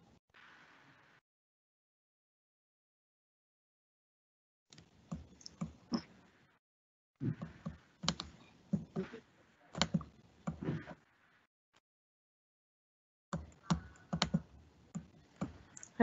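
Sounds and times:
keyboard and mouse clicks: 0:04.7 - 0:06.1, 0:07.3 - 0:10.8, 0:13.3 - 0:16.0.

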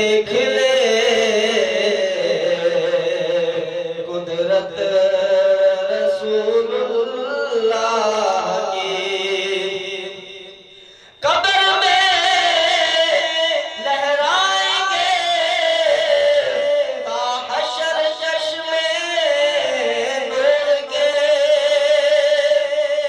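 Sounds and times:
man singing into microphone: 0:00.0 - 0:23.0.

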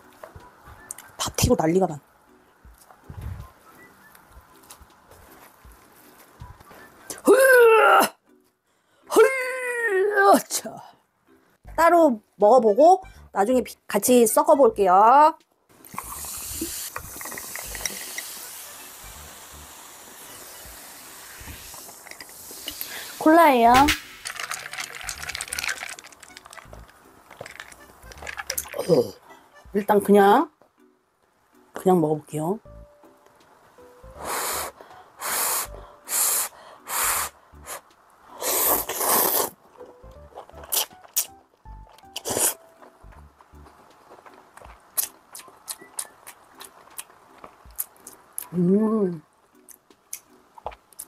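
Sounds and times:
cola pouring and fizzing: 0:15.9 - 0:23.3, 0:23.9 - 0:28.9
person slurping noodles: 0:38.4 - 0:39.6, 0:42.2 - 0:42.6.

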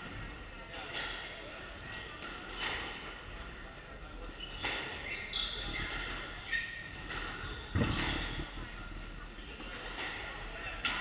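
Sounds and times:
shoes squeaking on wooden floor: 0:04.4 - 0:09.2.

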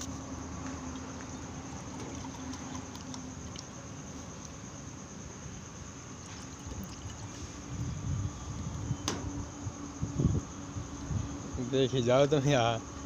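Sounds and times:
liquid pouring into metal tumbler: 0:06.2 - 0:07.4.

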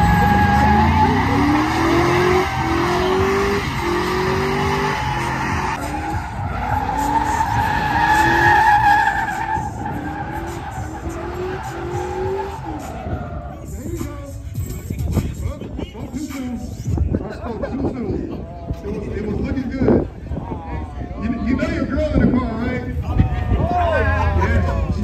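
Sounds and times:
engine revving: 0:00.0 - 0:08.5, 0:09.3 - 0:13.1
tyres squealing: 0:00.0 - 0:14.2.

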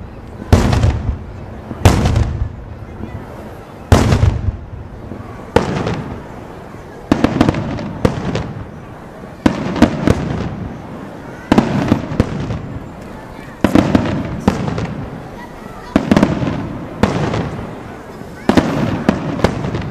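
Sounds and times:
crackling firework pops: 0:00.0 - 0:03.1, 0:03.9 - 0:06.3, 0:07.0 - 0:08.8, 0:11.5 - 0:15.1, 0:15.9 - 0:17.7, 0:18.4 - 0:19.9.

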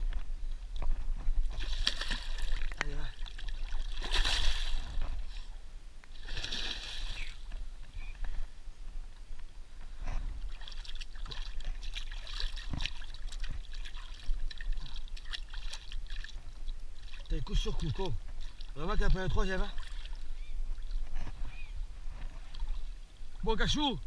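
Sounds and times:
fish splashing in water: 0:01.5 - 0:05.1, 0:10.5 - 0:17.3
light splashing and trickling water: 0:01.5 - 0:05.5, 0:06.1 - 0:07.6, 0:10.4 - 0:21.1.

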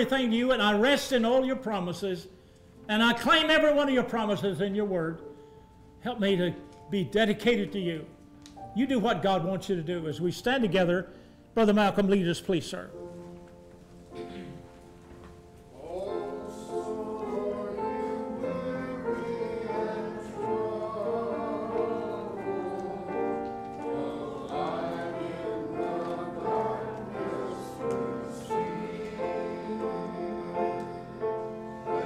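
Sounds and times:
instrumental accompaniment: 0:12.9 - 0:32.0
congregation singing a hymn: 0:15.6 - 0:32.0.

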